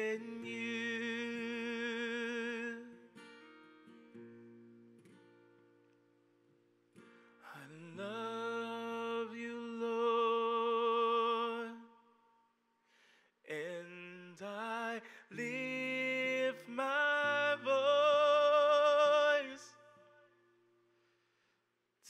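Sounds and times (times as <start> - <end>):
acoustic guitar strumming: 0.0 - 5.9.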